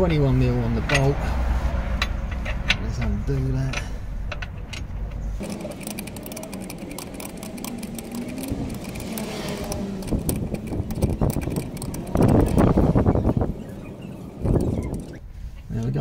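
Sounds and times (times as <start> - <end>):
spanner ratchet clicking: 2.0 - 12.9.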